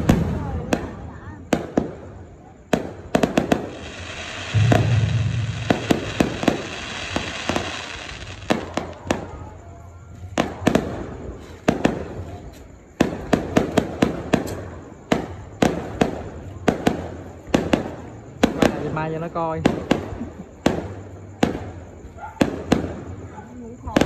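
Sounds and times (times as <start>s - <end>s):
fireworks booming: 0.0s - 9.6s
fireworks crackling: 0.0s - 24.0s
sharp firework bangs: 2.7s - 9.6s.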